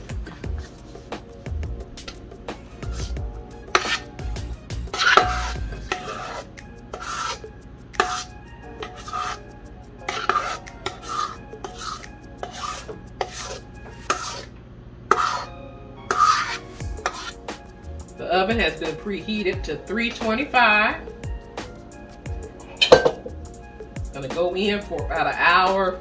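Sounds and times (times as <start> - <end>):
spatula scraping metal bowl: 2.8 - 14.5, 15.1 - 15.5, 16.1 - 17.6.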